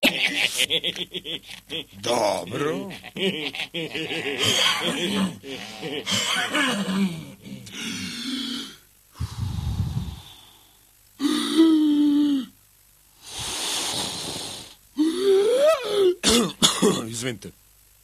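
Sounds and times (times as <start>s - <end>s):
man huffing and puffing: 4.4s - 10.5s, 13.2s - 16.2s
long hissing blow: 7.7s - 12.5s, 13.1s - 16.2s
breath puff rumbling on microphone: 9.2s - 10.5s, 13.2s - 14.8s.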